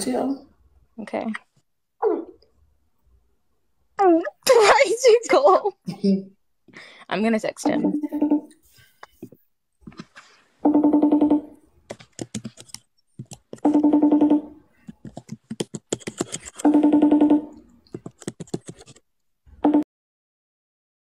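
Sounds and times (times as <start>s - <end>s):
phone ringback tone: 10.6s - 11.5s, 13.6s - 14.6s, 16.6s - 17.6s.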